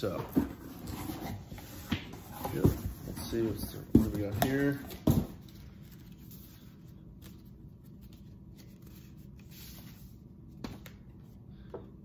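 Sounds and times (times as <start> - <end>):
paper and cardboard rustling: 0.0 - 10.9
faint steady hum: 0.0 - 12.0.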